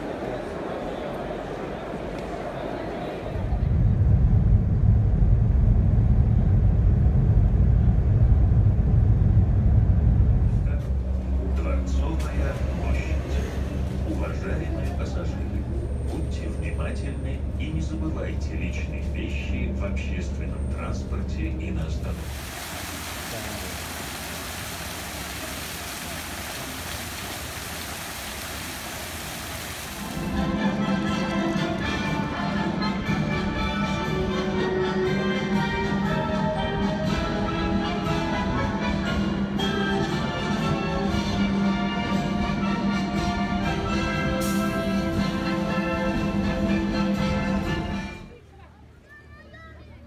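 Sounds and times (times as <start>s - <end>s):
boat rumble at sea: 3.4s - 33.7s
fountain water splashing: 22.0s - 30.6s
music: 30.2s - 48.4s.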